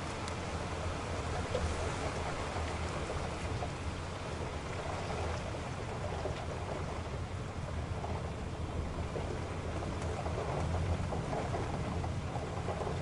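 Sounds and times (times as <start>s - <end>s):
faint ticks: 0.0s - 0.5s, 9.8s - 13.0s
rain and tyres hissing on wet road: 0.0s - 13.0s.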